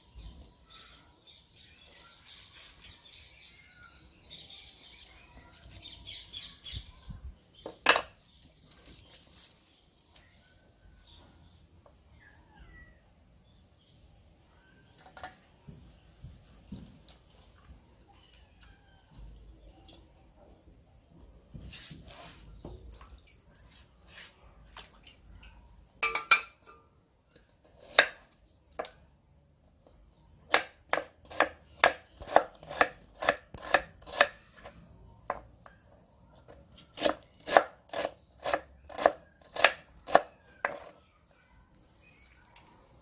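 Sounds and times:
knife chopping on wooden board: 30.5s - 34.3s.

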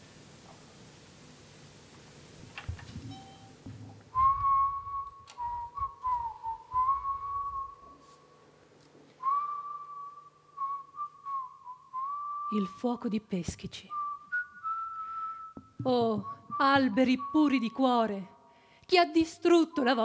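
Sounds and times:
person whistling: 4.1s - 8.2s, 9.2s - 12.9s, 13.9s - 17.8s
soft low thuds: 15.6s - 17.0s.

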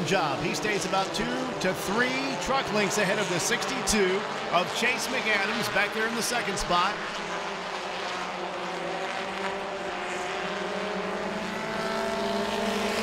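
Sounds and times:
race engines droning: 0.0s - 13.0s.

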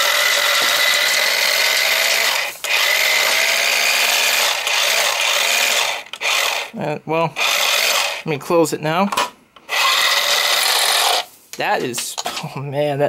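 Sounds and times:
money gun motor whirring: 0.0s - 6.7s, 7.4s - 8.2s, 9.7s - 11.3s.

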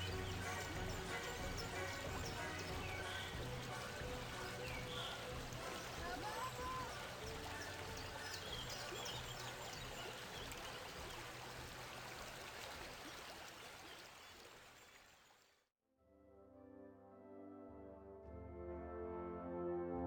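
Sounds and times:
rushing outdoor background noise: 0.0s - 13.2s.

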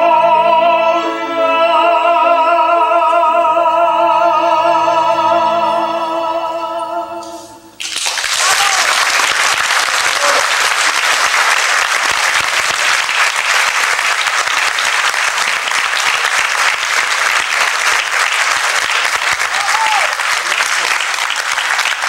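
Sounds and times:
audience applauding: 7.8s - 22.0s.

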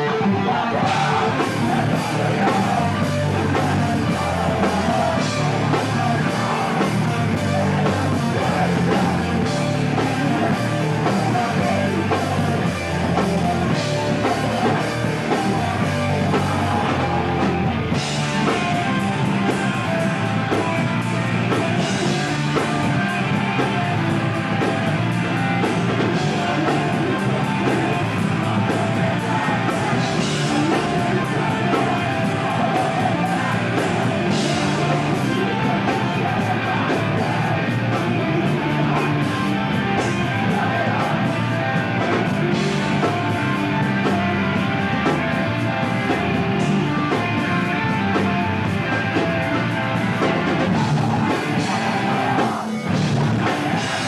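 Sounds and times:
person singing: 0.0s - 54.0s
punk band playing live: 0.0s - 54.0s.

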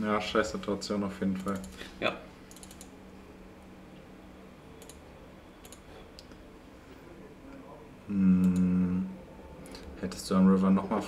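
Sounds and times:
faint low hum: 0.0s - 11.0s
computer mouse clicks: 1.4s - 1.8s, 2.5s - 2.9s, 4.8s - 5.0s, 5.6s - 6.4s.

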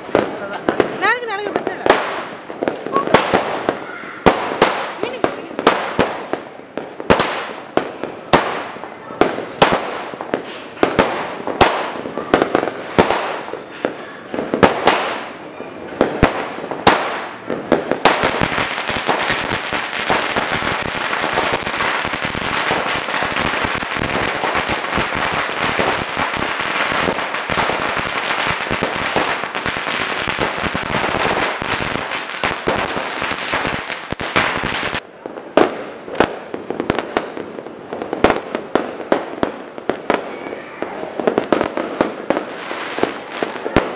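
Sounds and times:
firework bangs: 0.0s - 43.9s
crackle of rapid firework pops: 1.8s - 35.0s.

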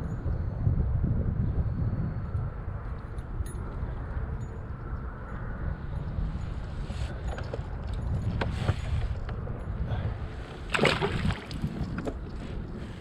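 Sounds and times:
wind rumbling on microphone: 0.0s - 13.0s
water splash: 10.7s - 11.8s.

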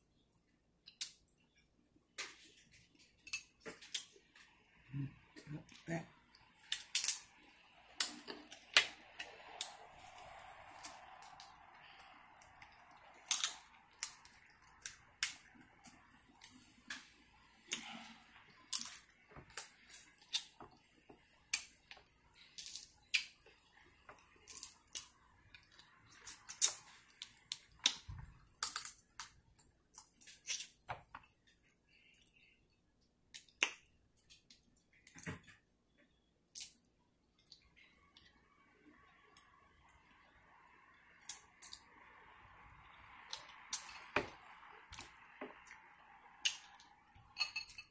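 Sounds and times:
crab shells cracking: 13.2s - 15.4s.

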